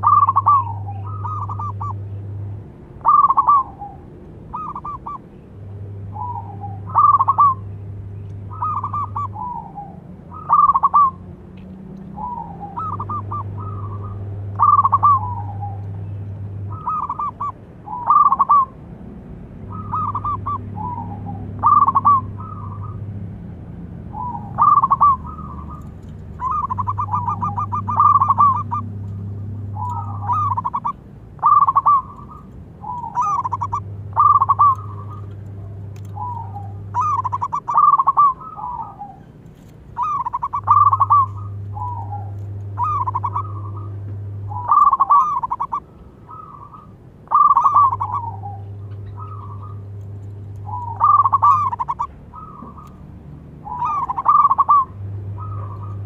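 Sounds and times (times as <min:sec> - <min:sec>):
dove cooing: 0:00.0 - 0:02.3, 0:03.0 - 0:05.4, 0:06.0 - 0:07.8, 0:08.4 - 0:11.3, 0:12.1 - 0:18.8, 0:19.6 - 0:23.1, 0:24.0 - 0:56.0.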